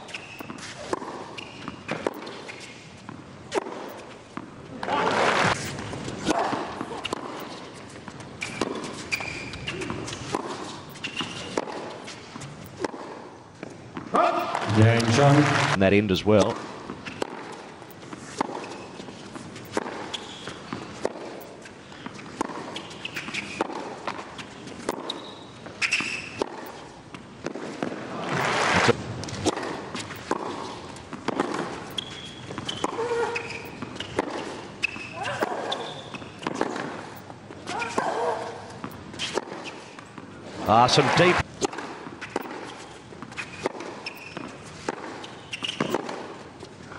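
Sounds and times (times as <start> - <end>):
shoe squeaks on court: 0.0 - 3.0, 6.9 - 12.8, 17.0 - 20.8, 21.4 - 26.9, 30.0 - 40.0, 42.2 - 46.3
racquet striking tennis ball: 5.2 - 15.1, 16.5 - 37.0, 41.0 - 46.4
crowd noise: 40.6 - 41.4.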